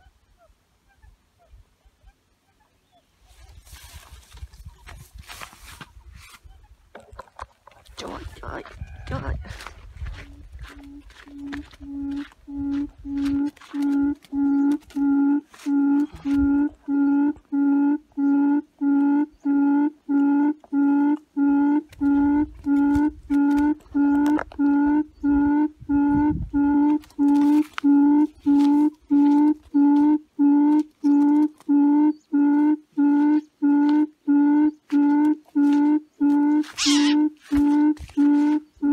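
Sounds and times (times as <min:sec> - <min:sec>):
low hooting bird call: 0:08.7 - 0:38.9
brief scratchy sound: 0:36.5 - 0:38.6.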